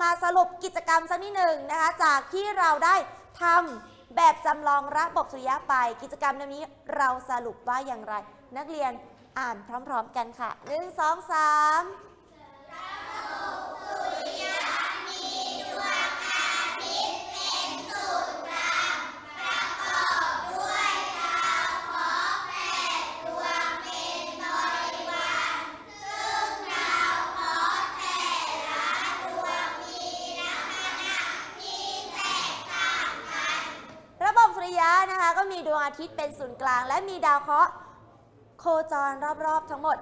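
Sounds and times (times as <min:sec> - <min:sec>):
children reading aloud in unison: 0:12.3 - 0:34.8.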